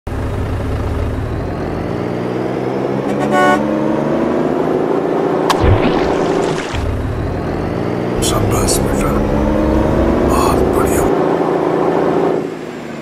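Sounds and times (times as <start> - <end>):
truck engine running: 0.1 - 2.0, 5.5 - 11.1
horn tooting: 3.0 - 3.7.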